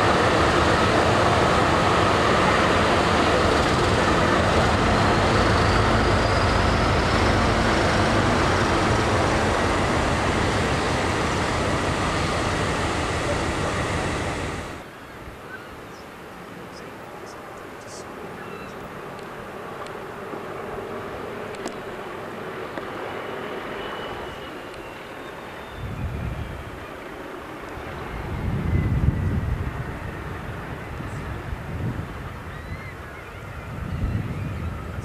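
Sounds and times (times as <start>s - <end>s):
diesel locomotive engine rumbling: 0.0s - 14.9s.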